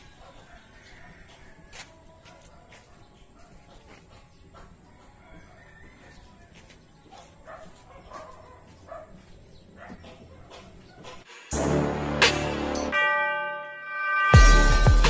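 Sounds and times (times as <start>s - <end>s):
distant chicken calls: 0.0s - 11.3s.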